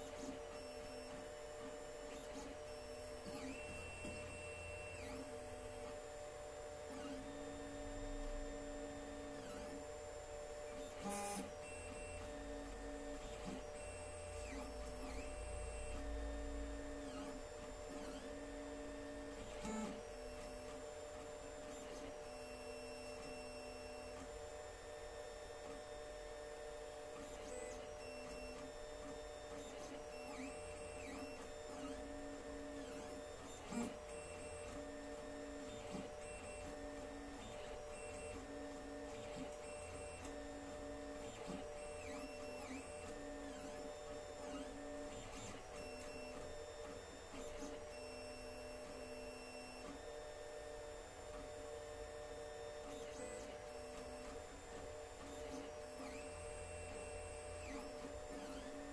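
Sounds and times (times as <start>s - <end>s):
stepper motors whining: 52.8s - 58.9s.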